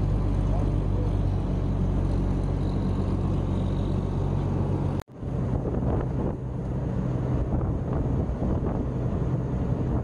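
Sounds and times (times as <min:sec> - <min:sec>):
boat engine running: 0:00.0 - 0:10.0
wind on microphone: 0:05.2 - 0:10.0.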